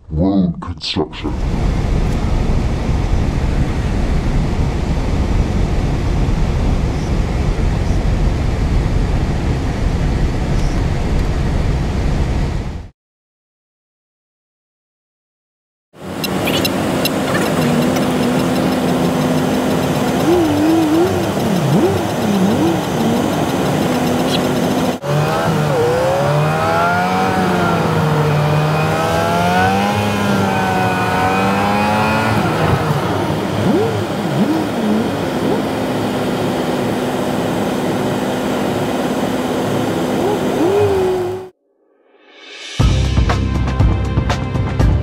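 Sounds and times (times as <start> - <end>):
car engine idling and revving: 1.4 - 12.9, 16.0 - 41.5.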